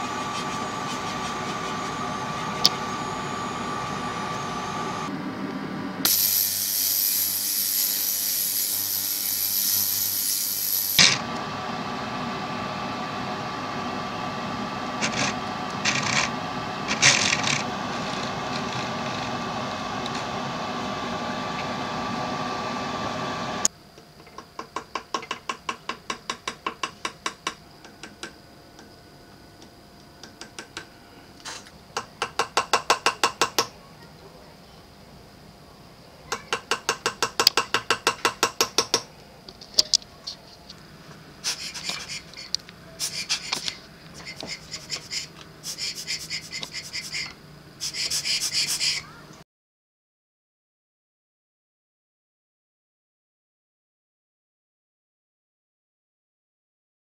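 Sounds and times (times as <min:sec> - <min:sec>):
mechanical hum: 0:00.0 - 0:49.4
loud hissing jet: 0:06.0 - 0:11.0.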